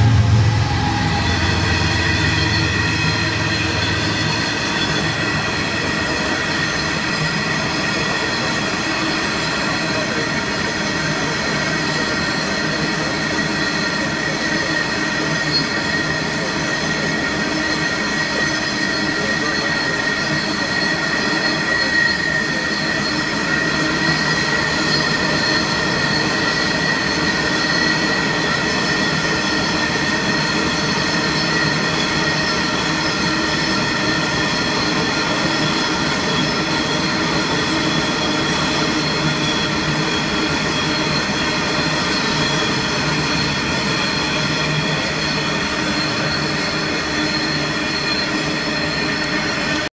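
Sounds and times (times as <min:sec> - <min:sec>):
heavy vehicle droning: 0:00.0 - 0:06.4
high-pitched whine: 0:00.0 - 0:49.9.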